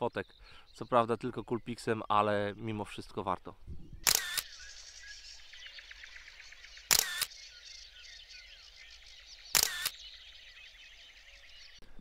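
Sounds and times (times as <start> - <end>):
songbirds chirping: 0.0 - 12.0
camera shutter: 4.0 - 4.6, 6.9 - 7.3, 9.5 - 10.0.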